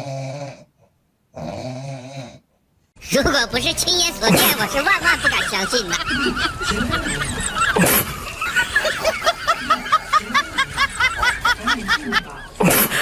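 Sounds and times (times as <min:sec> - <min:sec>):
high-pitched snickering laughter: 0:04.2 - 0:13.0.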